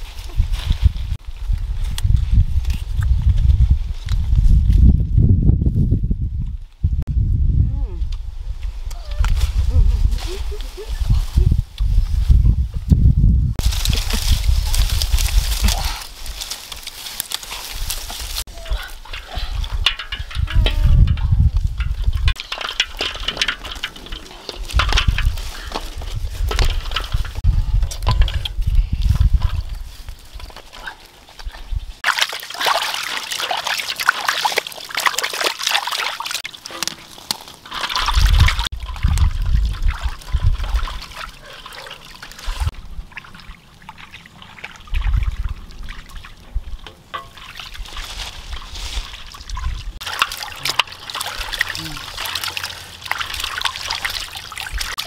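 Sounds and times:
water trickling and splashing: 13.6 - 55.0.

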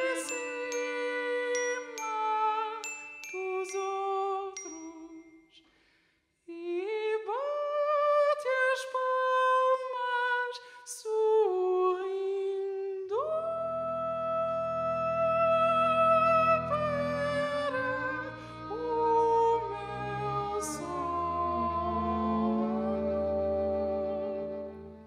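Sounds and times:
glockenspiel notes: 0.0 - 5.5
low sustained tones: 13.3 - 25.0.

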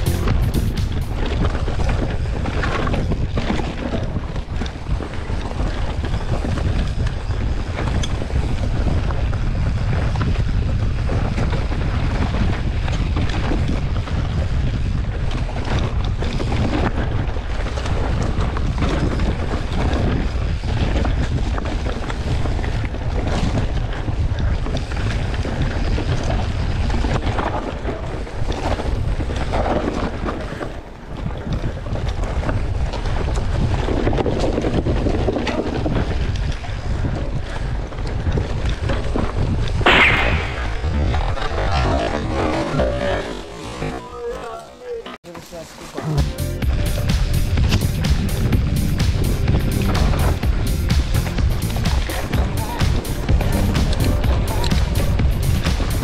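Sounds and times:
bike rattles and knocks: 0.0 - 39.9
wind buffeting microphone: 0.0 - 43.2.

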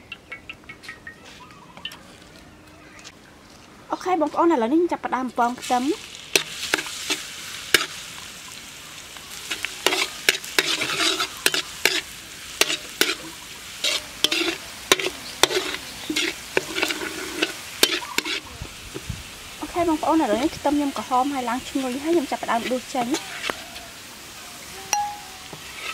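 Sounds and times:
garlic sizzling in oil: 5.2 - 25.9
metal spatula scraping wok: 6.3 - 8.0, 9.4 - 19.1, 19.8 - 23.6, 25.0 - 25.9.

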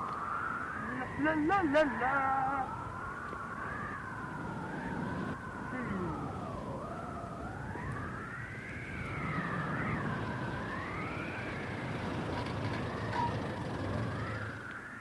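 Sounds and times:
two-tone siren-like wailing: 0.0 - 15.0
small car engine running: 9.0 - 14.8.

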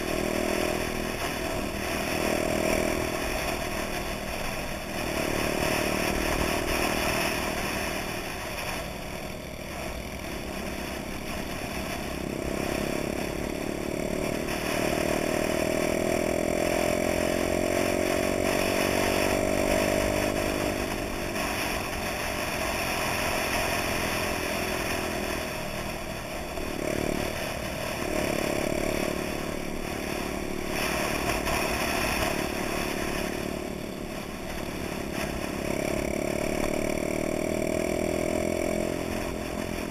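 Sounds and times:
moped engines running: 0.0 - 39.9.

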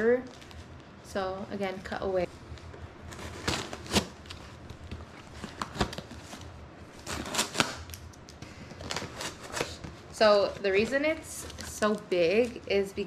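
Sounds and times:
packaging rustling: 2.5 - 12.6.

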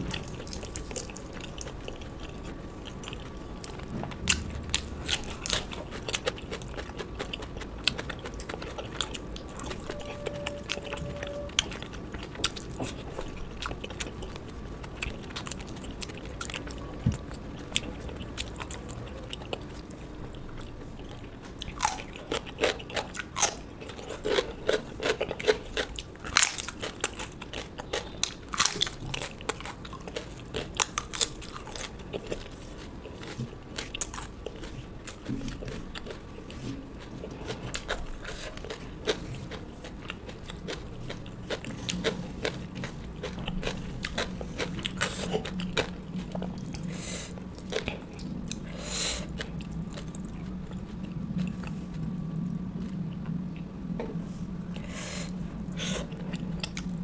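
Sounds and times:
person chewing and crunching food: 0.0 - 57.0.

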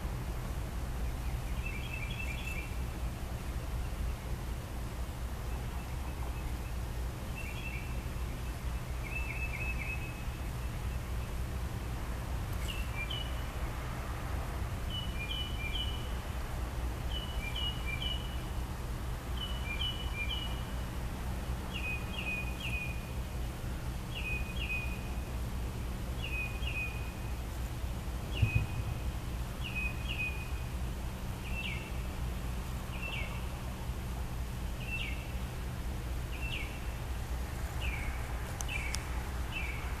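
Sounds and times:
mockingbird singing: 28.3 - 30.6
thump: 28.4 - 28.9.

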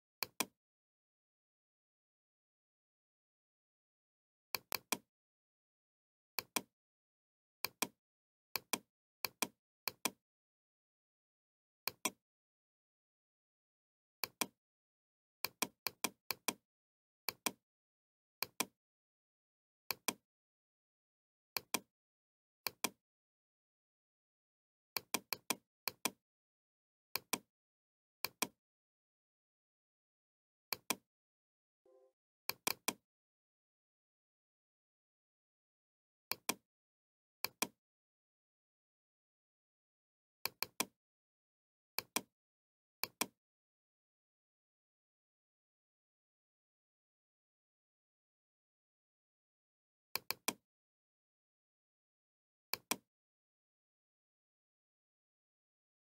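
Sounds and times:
computer mouse clicking: 7.6 - 8.0, 21.6 - 21.9, 28.2 - 28.6, 30.7 - 31.0, 40.4 - 40.9.

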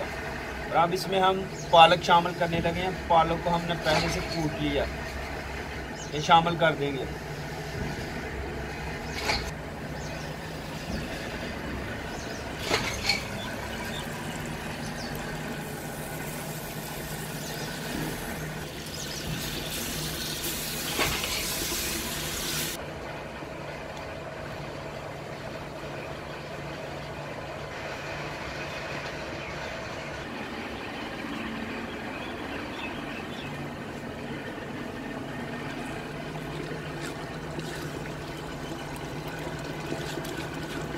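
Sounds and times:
hiss: 19.0 - 22.8
steady low hum: 22.0 - 40.9.

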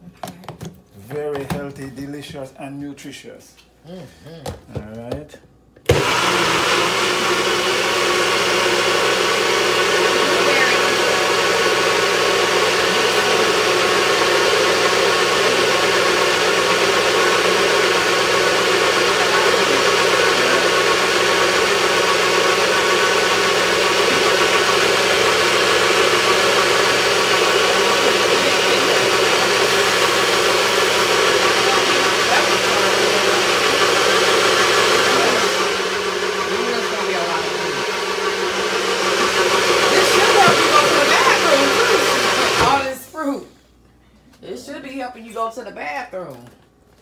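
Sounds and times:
blender motor whirring: 5.9 - 43.0.

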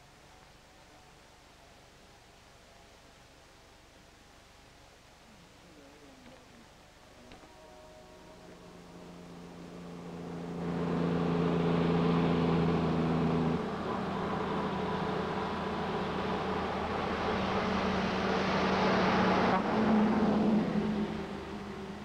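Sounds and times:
road noise: 5.6 - 22.0
vehicle engine running: 7.3 - 22.0.

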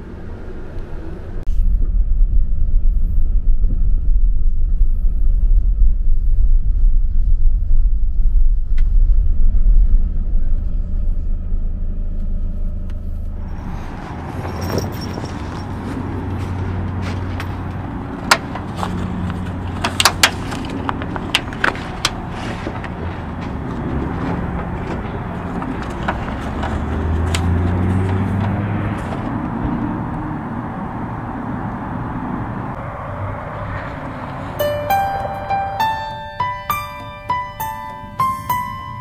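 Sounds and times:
outdoor low rumble: 0.0 - 38.2
sharp clicks and rattles: 14.4 - 29.3.

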